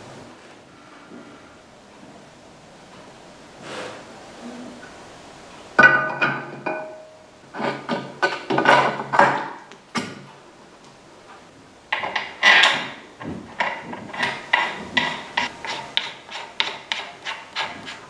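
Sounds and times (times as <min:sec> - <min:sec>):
scraping rub: 0:13.8 - 0:18.0.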